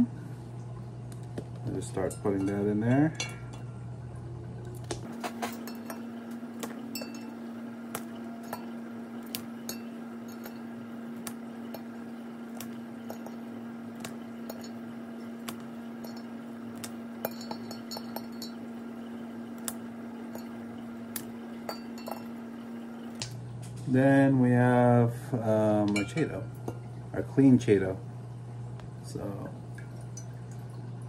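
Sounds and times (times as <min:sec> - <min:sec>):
steady low hum: 0:00.0 - 0:31.0
ceramic pieces clinking: 0:05.2 - 0:07.4, 0:08.4 - 0:10.7, 0:13.1 - 0:13.4, 0:14.4 - 0:14.8, 0:16.0 - 0:16.4, 0:17.2 - 0:18.6, 0:21.2 - 0:22.4.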